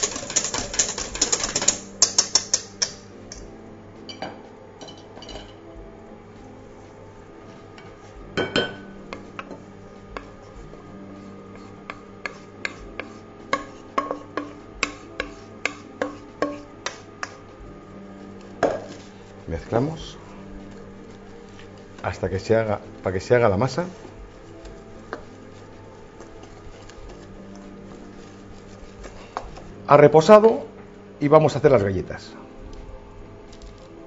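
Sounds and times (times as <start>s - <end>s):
scraping steel mixing bowl: 0.0s - 2.9s
wooden spoon tapping glass bowl: 0.2s - 3.4s, 8.3s - 9.6s, 12.3s - 17.4s
knock on bowl: 18.6s - 18.9s.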